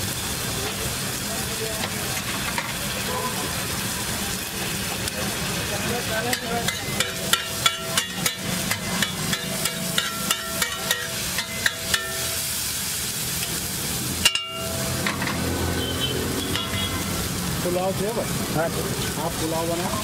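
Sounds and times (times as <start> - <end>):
egg and vegetables sizzling: 0.0 - 20.0
metal spatula clacking on griddle: 6.0 - 12.4, 14.2 - 15.4, 16.5 - 17.0.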